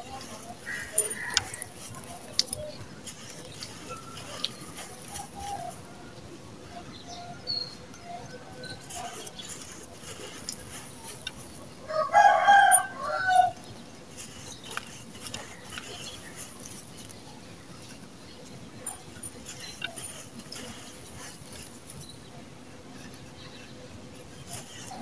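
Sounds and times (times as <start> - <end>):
rooster crowing: 11.8 - 13.6.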